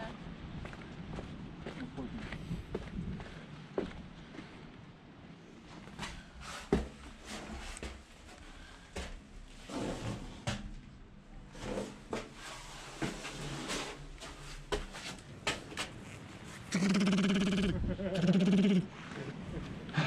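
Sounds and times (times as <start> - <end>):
footsteps on concrete floor: 0.6 - 4.6, 13.0 - 16.7.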